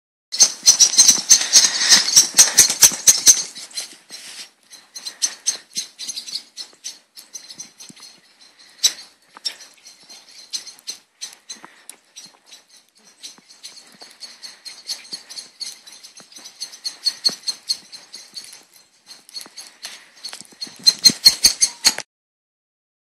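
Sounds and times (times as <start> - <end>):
footsteps crunching in snow: 1.1 - 4.6.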